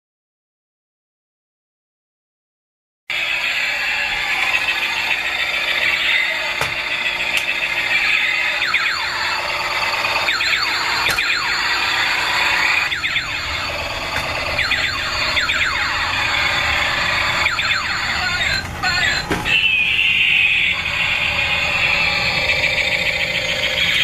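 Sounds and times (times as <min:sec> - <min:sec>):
shrill electronic toy warble: 0:03.1 - 0:24.0.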